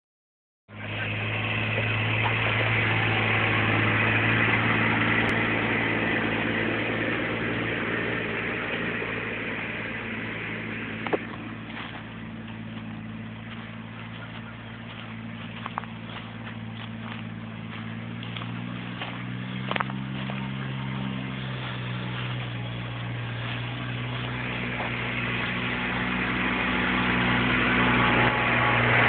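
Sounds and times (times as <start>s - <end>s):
utility vehicle engine running: 0.7s - 29.0s.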